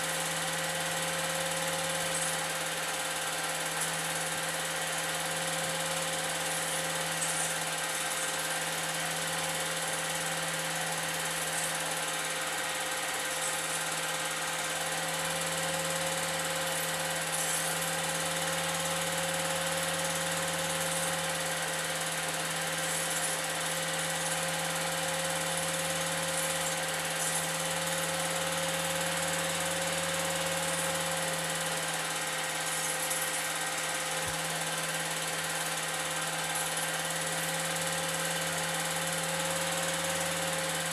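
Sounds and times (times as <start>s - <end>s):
film projector running: 0.0s - 40.9s.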